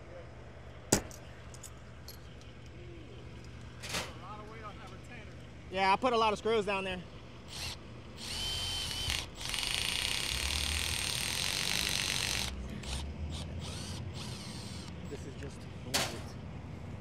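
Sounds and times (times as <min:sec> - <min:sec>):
power drill driving screws: 0:07.5 - 0:14.9.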